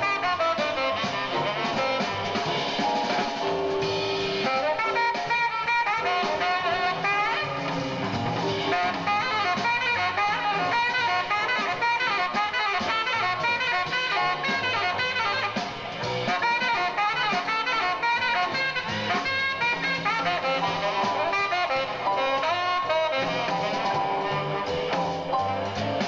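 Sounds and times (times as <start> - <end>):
drums: 0.0 - 26.0
piano: 0.0 - 26.0
saxophone solo: 0.0 - 26.0
upright bass: 0.0 - 26.0.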